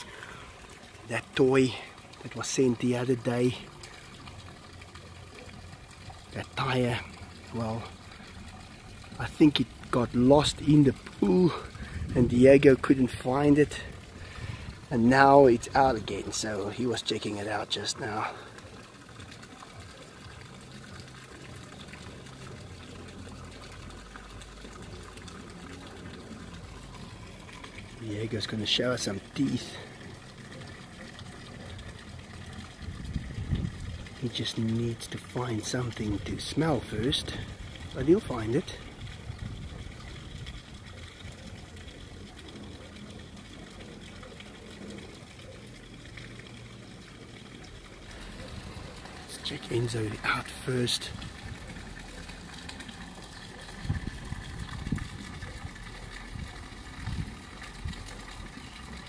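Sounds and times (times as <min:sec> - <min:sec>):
running water rushing: 0:00.0 - 0:59.0.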